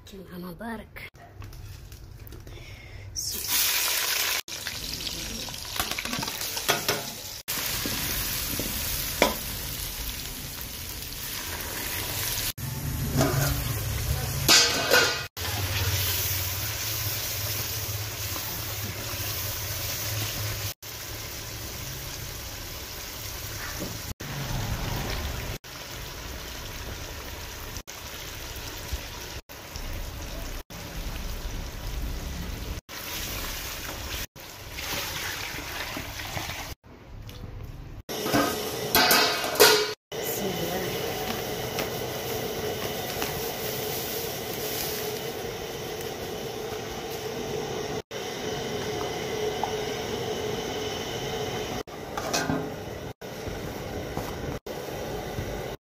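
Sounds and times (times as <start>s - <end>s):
food sizzling in oil: 3.2s - 36.8s, 38.1s - 55.8s.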